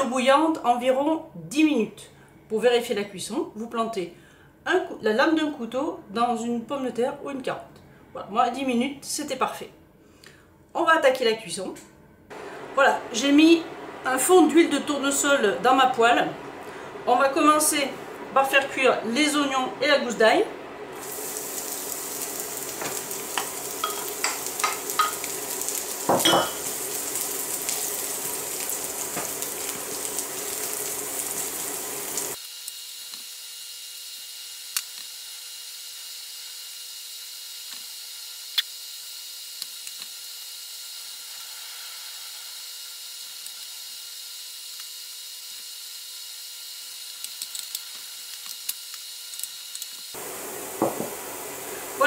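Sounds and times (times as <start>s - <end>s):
onion and garlic sizzling in pan: 20.8s - 34.5s, 40.2s - 52.0s.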